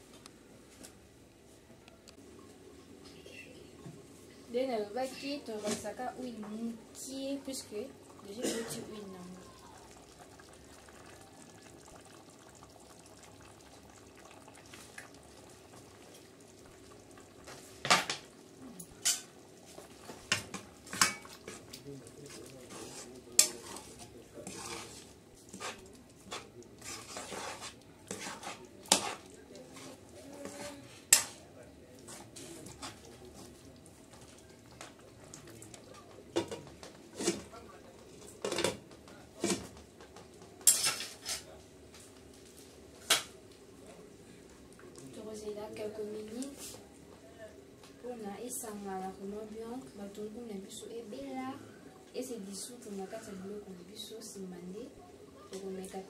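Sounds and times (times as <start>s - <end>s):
spoon knocking and scraping pot: 20.1s - 21.6s, 22.7s - 31.4s.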